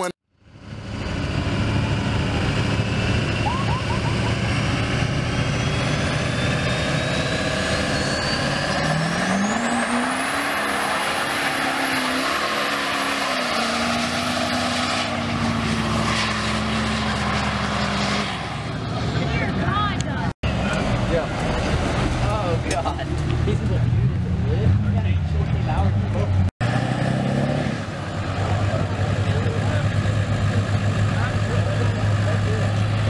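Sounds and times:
diesel engine revving: 0:00.4 - 0:33.0
turbo whistle: 0:03.4 - 0:04.3.

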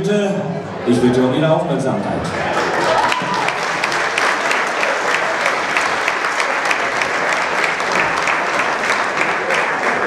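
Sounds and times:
audience applauding: 0:02.3 - 0:10.0.

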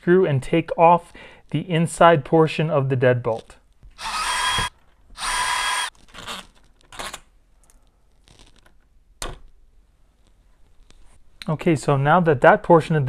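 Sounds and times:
cordless drill running: 0:04.0 - 0:06.4.

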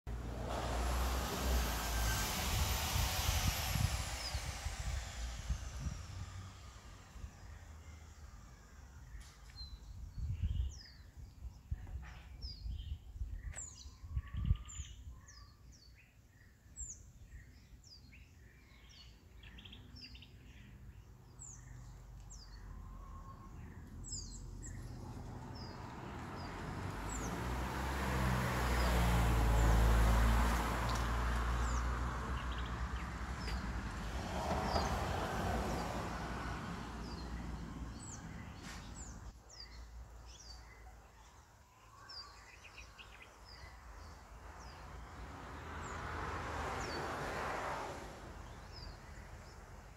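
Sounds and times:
rushing noise with low rumble: 0:00.1 - 0:07.6
birds chirping: 0:30.9 - 0:36.0.

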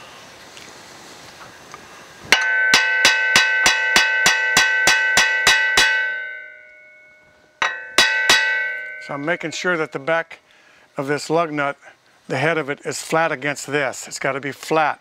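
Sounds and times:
hammer ringing on metal: 0:02.3 - 0:10.2.

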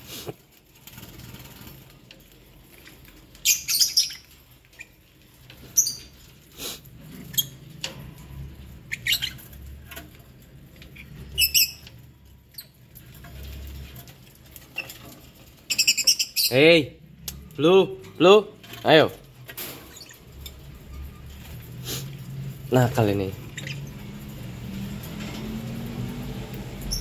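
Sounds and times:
lovebirds chirping: 0:03.3 - 0:06.4, 0:08.5 - 0:09.9, 0:10.8 - 0:12.8, 0:14.5 - 0:17.0, 0:19.9 - 0:24.3.

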